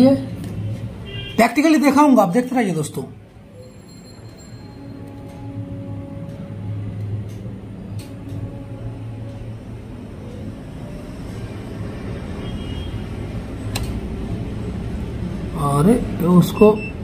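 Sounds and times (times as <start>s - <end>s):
steady low hum: 4.4s - 17.0s.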